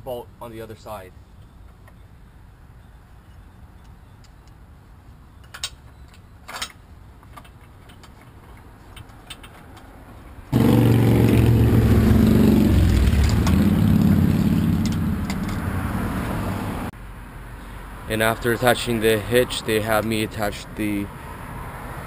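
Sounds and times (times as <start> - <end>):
engine running: 10.5 - 16.9.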